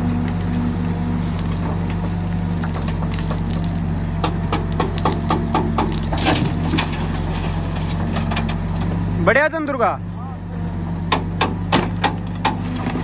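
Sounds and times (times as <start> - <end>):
diesel engine running: 0.0 - 13.0
stones and soil spilling: 2.0 - 8.2.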